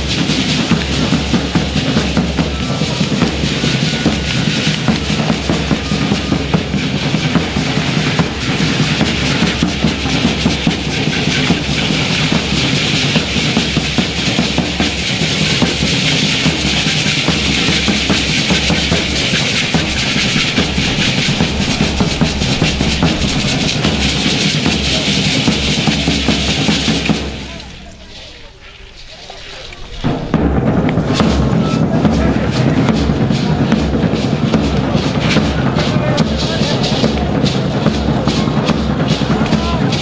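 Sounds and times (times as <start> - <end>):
drums beating steady rhythm: 0.0 - 40.0
handheld rattles shaking: 1.8 - 28.3.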